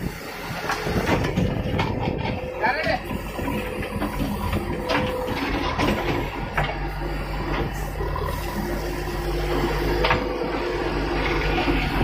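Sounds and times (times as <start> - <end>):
diesel engine running under load: 0.0 - 12.0.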